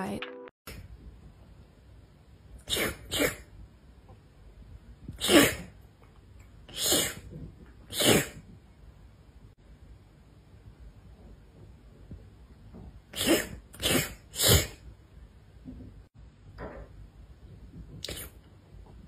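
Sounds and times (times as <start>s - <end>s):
short sharp sneezes: 2.6s - 3.5s, 5.1s - 5.7s, 6.7s - 7.3s, 7.9s - 8.4s, 13.1s - 14.8s.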